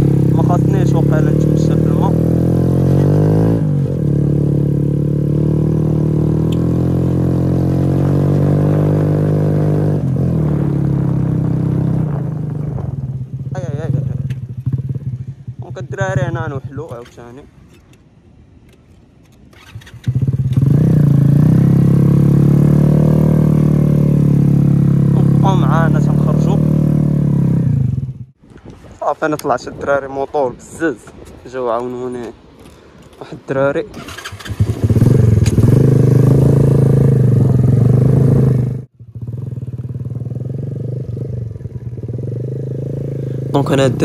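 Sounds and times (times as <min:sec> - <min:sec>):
motorcycle engine starting and running: 0:00.0 - 0:18.0, 0:18.7 - 0:28.4, 0:33.9 - 0:44.0.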